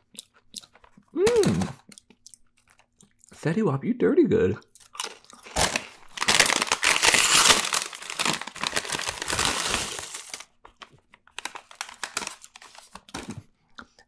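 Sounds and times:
chip bag crackling: 0:04.9 - 0:13.3.

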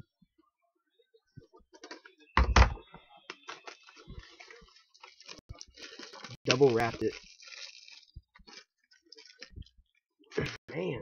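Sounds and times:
cellophane wrap crinkling: 0:03.3 - 0:10.0.

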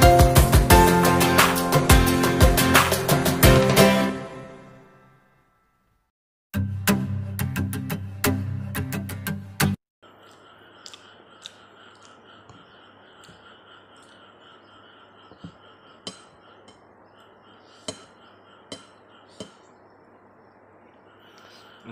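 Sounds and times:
background music: 0:00.0 - 0:05.1
quiet steady hum: 0:10.0 - 0:21.9.

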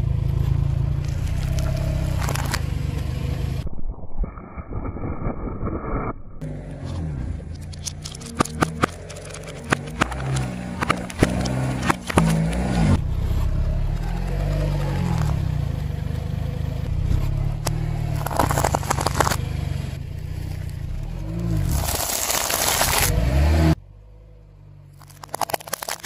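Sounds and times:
car engine running: 0:00.0 - 0:03.9, 0:05.9 - 0:26.0
cans bursting under tyre: 0:18.2 - 0:19.4, 0:21.6 - 0:23.2
peanut shells crunching: 0:21.6 - 0:23.1, 0:25.0 - 0:26.0.

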